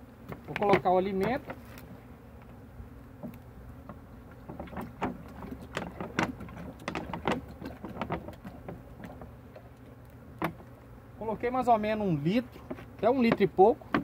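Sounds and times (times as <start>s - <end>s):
honey bees humming: 0.0s - 14.0s.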